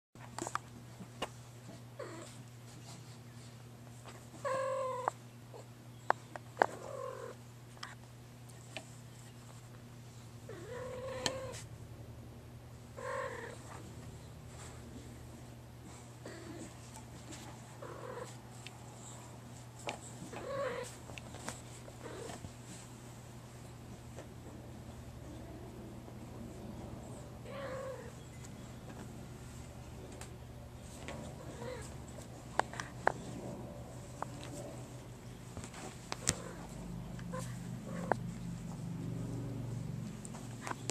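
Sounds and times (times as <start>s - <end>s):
steady low hum: 0.2s - 40.9s
cat purring: 10.4s - 11.7s, 15.9s - 19.3s, 22.0s - 22.4s, 31.1s - 40.9s.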